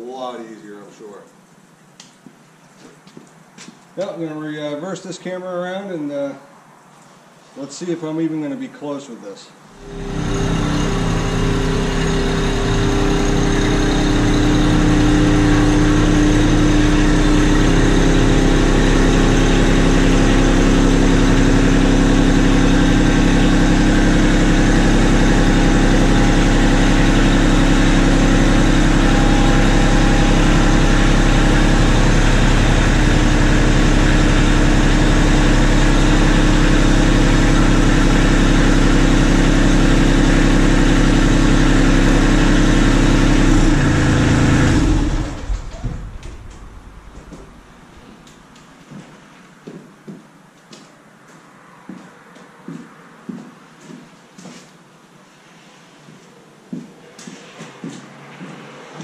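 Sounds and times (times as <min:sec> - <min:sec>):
tractor diesel engine running: 0:09.8 - 0:49.0.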